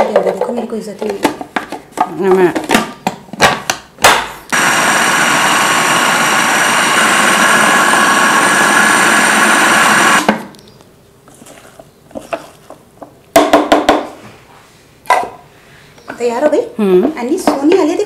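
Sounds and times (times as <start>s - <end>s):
food processor motor whine: 4.5s - 10.3s.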